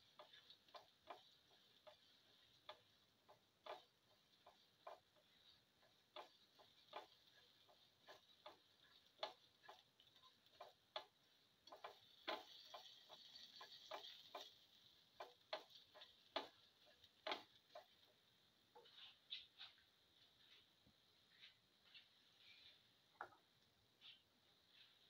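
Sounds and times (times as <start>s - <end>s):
spatula scraping seeds in pan: 0.0s - 19.6s
faint sizzle: 0.0s - 25.0s.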